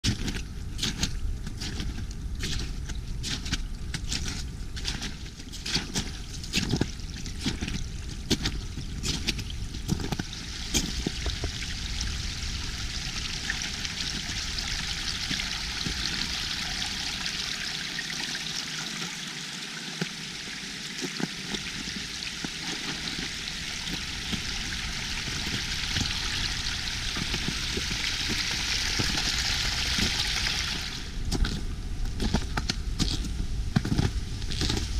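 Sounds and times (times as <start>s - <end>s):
water trickling over ice: 0.0s - 33.4s
sharp clicks and crunches: 31.3s - 34.9s.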